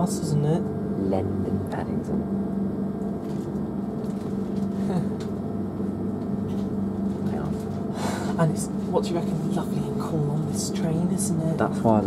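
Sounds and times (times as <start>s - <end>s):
train air conditioning hum: 0.0s - 12.0s.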